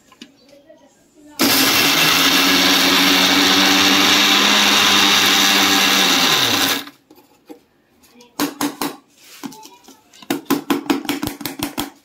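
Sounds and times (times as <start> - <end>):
blades grinding biscuits: 1.4 - 6.9
electric mixer grinder running: 1.4 - 6.9.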